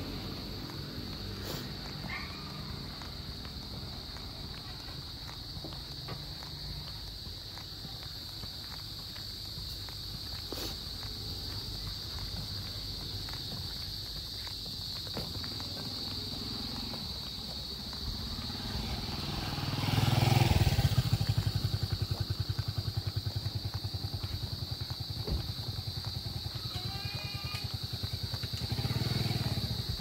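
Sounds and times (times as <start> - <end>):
small motorcycle engine running: 18.4 - 25.0, 28.4 - 30.0.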